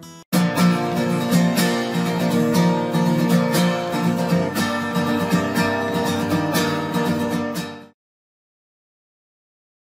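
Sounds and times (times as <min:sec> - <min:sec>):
strummed guitar music: 0:00.0 - 0:08.0.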